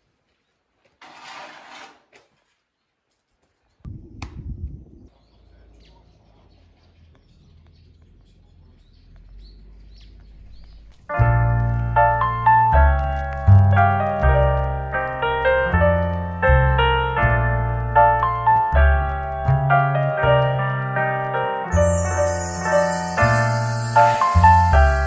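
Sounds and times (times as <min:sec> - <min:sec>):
low rumble: 0:03.9 - 0:05.2
bird chirps: 0:05.0 - 0:11.1, 0:21.8 - 0:25.0
piano music: 0:10.5 - 0:25.0.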